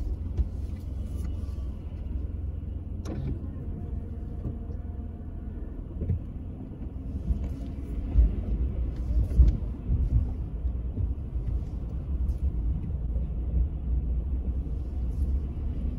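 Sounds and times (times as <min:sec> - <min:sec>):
thumps inside car: 0:00.0 - 0:01.4, 0:05.9 - 0:13.1
car driving rumble from inside: 0:00.0 - 0:15.9.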